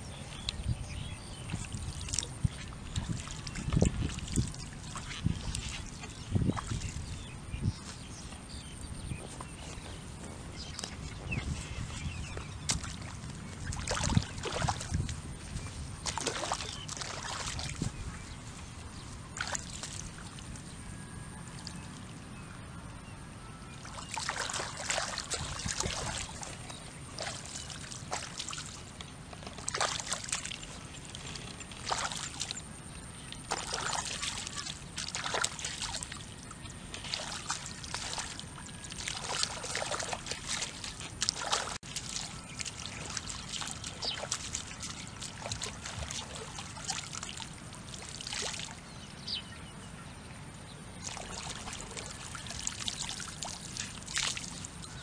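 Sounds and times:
hands splashing in muddy water: 0:10.6 - 0:18.3, 0:19.4 - 0:20.5, 0:23.9 - 0:28.8, 0:29.5 - 0:32.7, 0:33.3 - 0:36.2, 0:36.9 - 0:48.8, 0:51.0 - 0:55.0.

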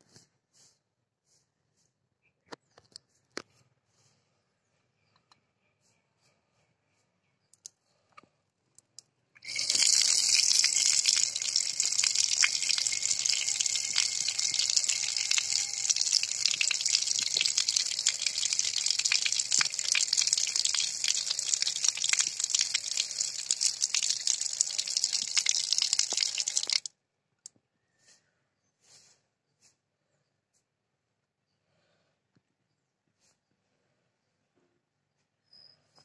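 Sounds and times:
rain falling: 0:09.5 - 0:26.9.

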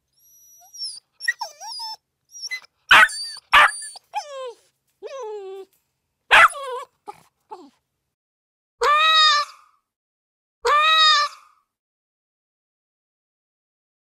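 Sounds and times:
dogs yipping and whining: 0:00.1 - 0:05.7, 0:06.3 - 0:07.8
dogs barking sharply: 0:02.9 - 0:04.0, 0:06.3 - 0:06.8.

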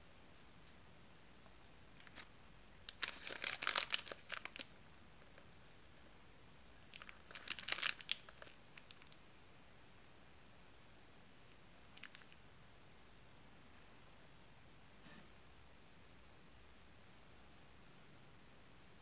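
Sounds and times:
plastic piping bag crinkling: 0:01.5 - 0:02.3, 0:02.9 - 0:05.8, 0:06.8 - 0:09.2, 0:11.9 - 0:12.4.

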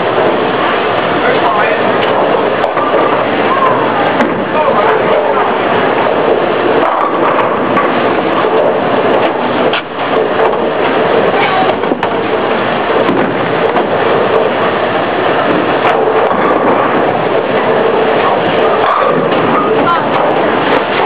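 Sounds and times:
bowling balls rolling: 0:00.0 - 0:21.0
sharp knocks: 0:13.0 - 0:14.5.

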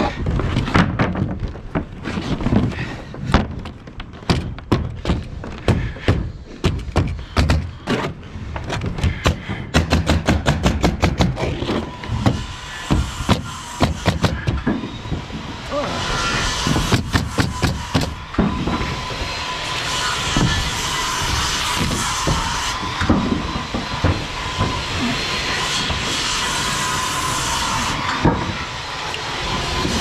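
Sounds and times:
pneumatic nailer shots: 0:05.7 - 0:08.2, 0:09.1 - 0:14.8, 0:16.2 - 0:19.0.

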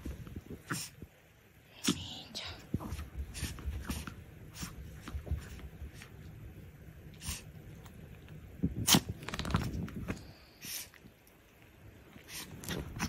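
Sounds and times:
dog rustling and scuffling: 0:00.0 - 0:01.0, 0:02.6 - 0:06.4, 0:07.2 - 0:10.8, 0:12.0 - 0:13.0
dog sneezing: 0:07.2 - 0:07.5, 0:10.6 - 0:10.9, 0:12.2 - 0:12.8.

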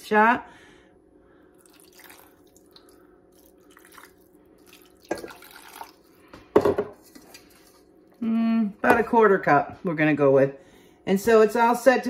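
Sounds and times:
water pouring and splashing into pot: 0:01.6 - 0:06.3, 0:06.9 - 0:08.2.

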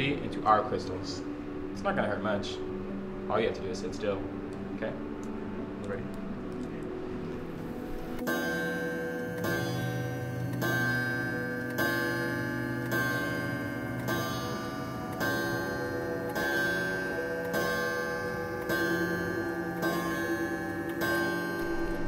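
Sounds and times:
clock bell striking: 0:08.2 - 0:22.0.

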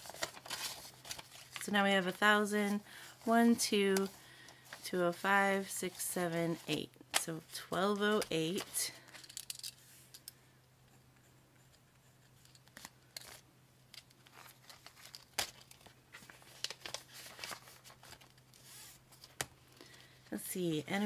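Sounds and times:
page turning: 0:00.0 - 0:01.6, 0:14.2 - 0:19.5
paper and plastic rustling: 0:00.0 - 0:05.4, 0:14.0 - 0:20.2.

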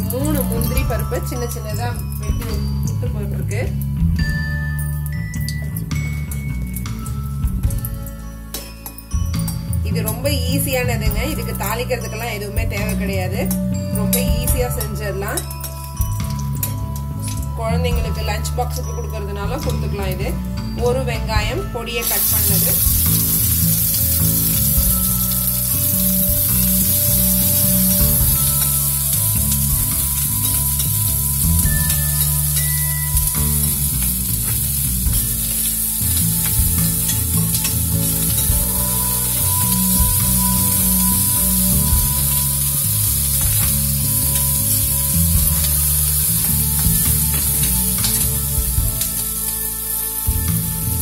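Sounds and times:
onions sizzling in a frying pan: 0:00.0 - 0:08.0, 0:22.0 - 0:51.0
background music: 0:00.0 - 0:51.0
steel spatula stirring: 0:22.0 - 0:50.6.

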